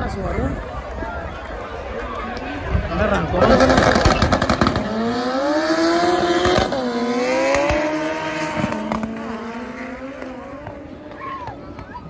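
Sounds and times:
race car engine accelerating: 3.4 - 11.2.

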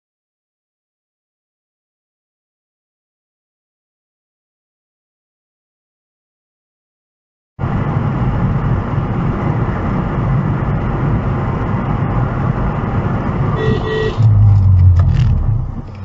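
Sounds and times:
car road and engine noise: 7.6 - 16.0
short beeps: 13.6 - 14.4.

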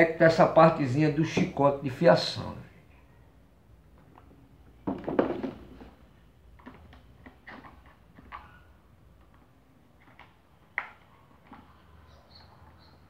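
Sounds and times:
plastic parts clicking and knocking: 3.9 - 11.7
loud plastic clatter: 4.8 - 6.0.

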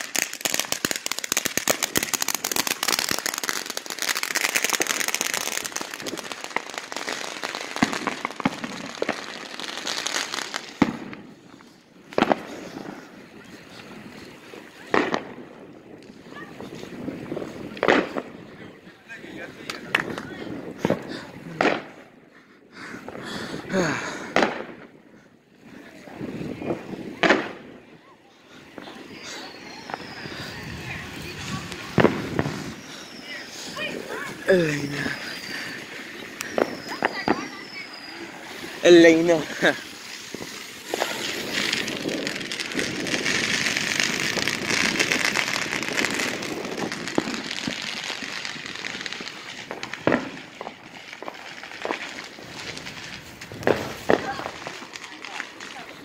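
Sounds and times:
firework bang: 0.0 - 9.4, 10.8 - 11.3, 12.1 - 13.0, 14.8 - 16.2, 17.1 - 18.4, 19.7 - 22.0, 24.3 - 24.9, 26.6 - 27.8, 28.8 - 55.9
firework pops and crackling: 0.0 - 18.7, 19.4 - 22.2, 23.0 - 25.0, 25.8 - 28.0, 28.7 - 56.0.

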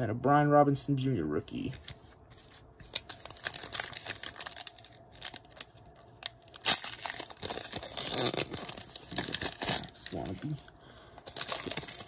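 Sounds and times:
foil wrapper crinkling: 2.8 - 10.6, 11.2 - 12.0.

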